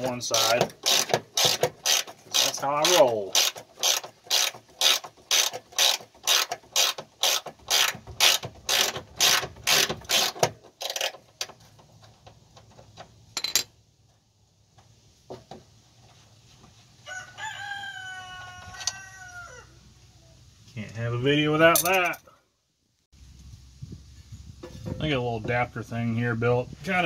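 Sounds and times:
ratchet wrench clicking: 0:00.7 - 0:11.2.

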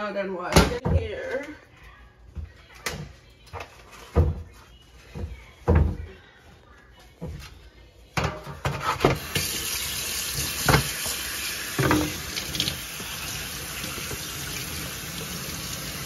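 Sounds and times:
water running into steel sink: 0:09.2 - 0:16.0.

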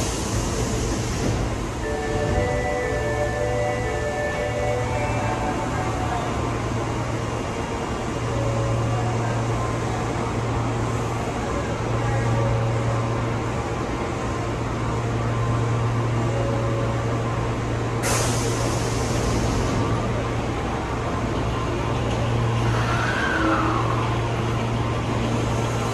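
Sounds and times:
station ambient noise: 0:00.0 - 0:25.9
subway train equipment humming: 0:00.0 - 0:25.9.

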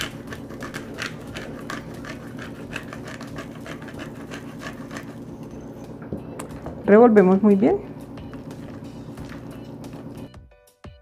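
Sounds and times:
pepper grinder clicking: 0:00.0 - 0:05.2.

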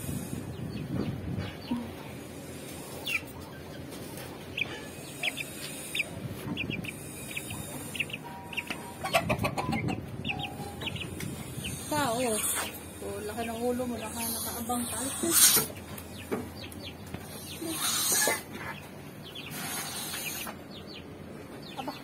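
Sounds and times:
chicks peeping: 0:00.0 - 0:22.0
rustling of birds being handled: 0:00.4 - 0:17.8.

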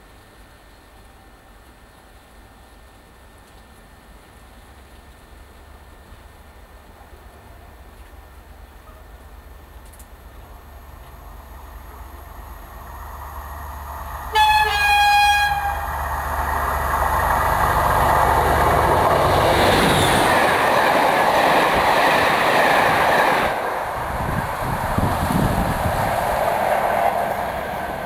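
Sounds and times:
train wheels on rails: 0:00.0 - 0:28.0
diesel locomotive engine: 0:00.1 - 0:28.0
train horn: 0:14.3 - 0:16.0.

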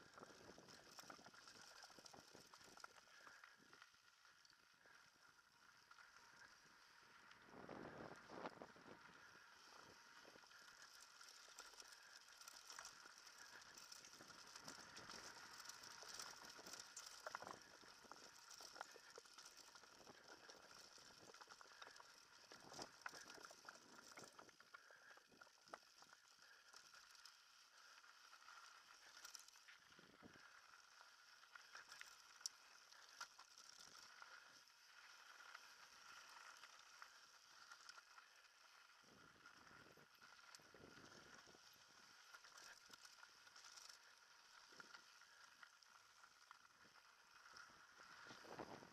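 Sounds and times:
bike rattling over bumps: 0:10.5 - 0:21.2.

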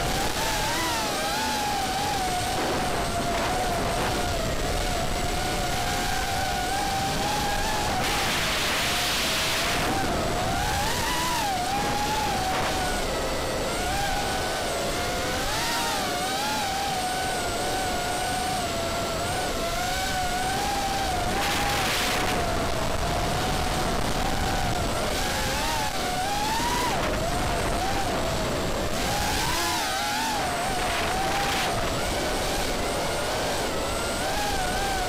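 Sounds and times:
rushing air noise: 0:00.0 - 0:13.5
quadcopter motors whining: 0:00.0 - 0:35.0.

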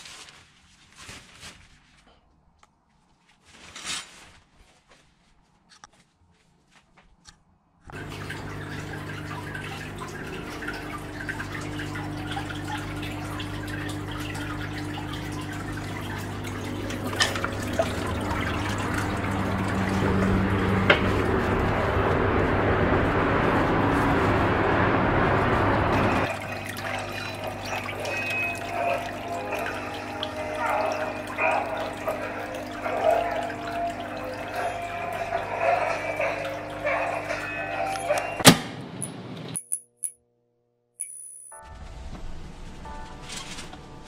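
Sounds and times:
water trickling into tank: 0:07.9 - 0:22.3, 0:26.0 - 0:38.3.

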